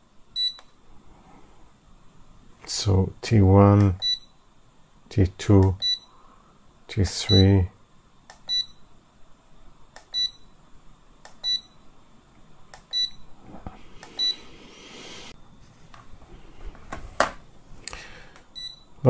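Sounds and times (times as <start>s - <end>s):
hot plate beeping: 14.1s - 14.5s.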